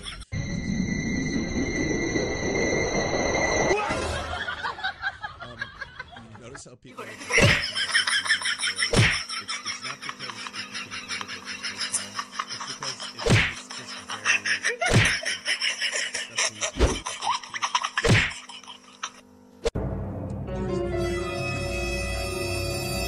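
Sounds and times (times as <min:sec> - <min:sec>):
person laughing: 0:03.8 - 0:19.2.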